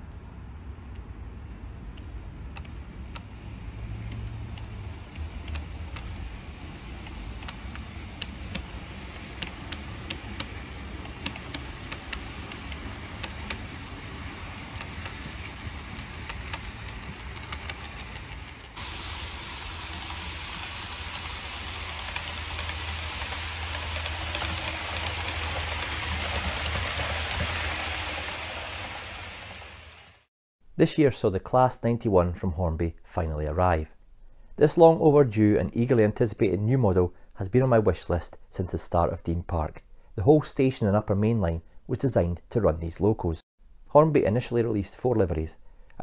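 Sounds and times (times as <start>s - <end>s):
model train motor hum: 6.9s - 29.6s
model train wheel clicks: 7.0s - 13.7s, 14.7s - 18.8s.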